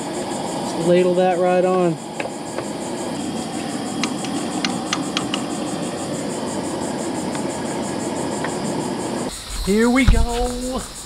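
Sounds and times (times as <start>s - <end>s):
gas burner hiss and rumble: 0.0s - 11.0s.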